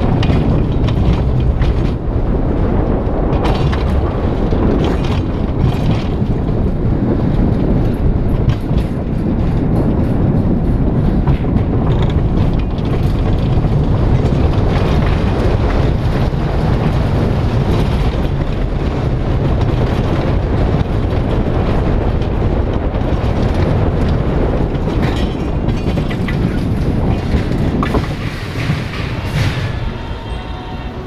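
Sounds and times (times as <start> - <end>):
sharp track clicks: 0.0 - 30.5
roller coaster rumbling on rails: 0.0 - 31.0.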